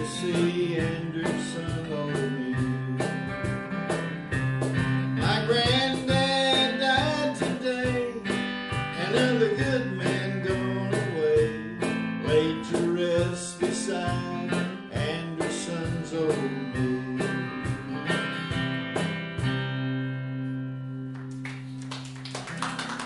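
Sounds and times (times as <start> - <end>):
acoustic guitar: 0.0 - 23.0
electric guitar: 0.0 - 23.0
audience clapping: 21.0 - 23.0.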